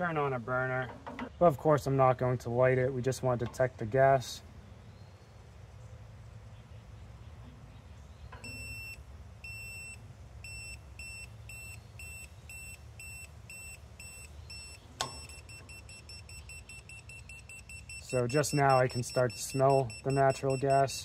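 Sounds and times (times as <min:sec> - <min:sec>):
gas detector beeping: 0:08.4 - 0:21.0.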